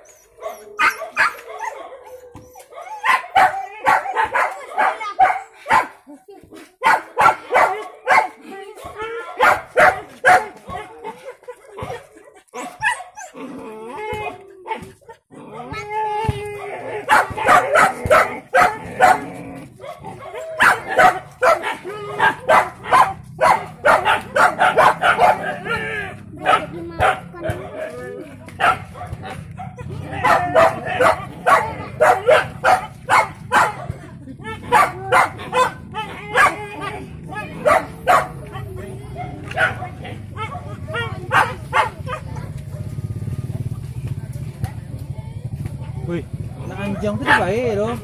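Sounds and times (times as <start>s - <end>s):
dog barking: 0.4s - 6.0s, 6.8s - 8.4s, 9.2s - 11.2s, 16.9s - 28.0s, 28.6s - 34.0s, 34.7s - 38.6s, 39.2s - 43.0s, 46.8s - 47.6s.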